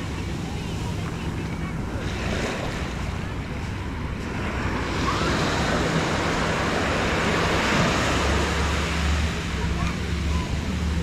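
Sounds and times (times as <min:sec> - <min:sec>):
small waves breaking on sand: 0:00.0 - 0:11.0.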